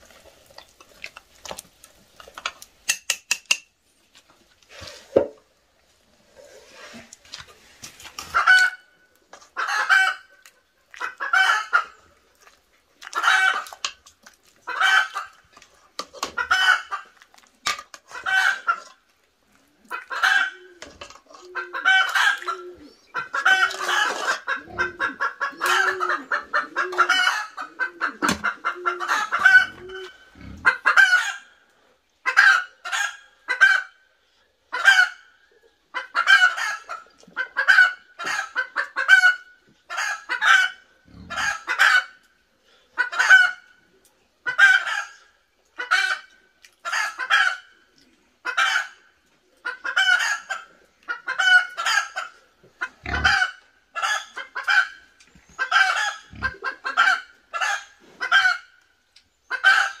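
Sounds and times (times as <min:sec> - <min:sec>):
chickens clucking: 0:06.2 - 0:34.0, 0:34.6 - 1:00.0.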